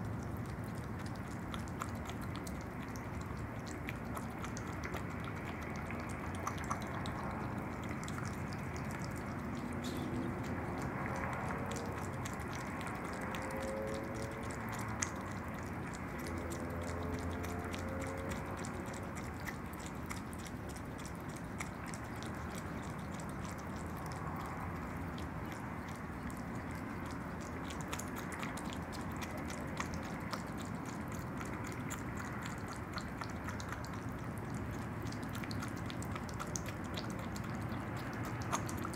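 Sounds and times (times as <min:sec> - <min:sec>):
animal wet chewing: 0:00.0 - 0:38.9
mouth clicks: 0:00.2 - 0:38.9.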